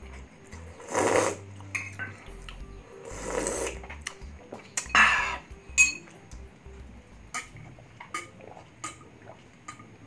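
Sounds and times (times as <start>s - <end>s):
spoon clinking against bowl: 4.8s - 6.1s.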